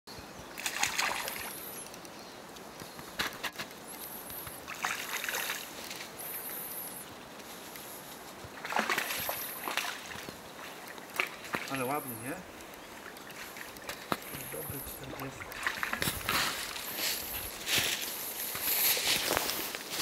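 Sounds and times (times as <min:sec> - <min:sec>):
fish splashing at surface: 0:00.6 - 0:01.5, 0:08.6 - 0:12.0, 0:13.0 - 0:16.9
sharp clicks: 0:01.2 - 0:04.6, 0:11.2 - 0:16.4.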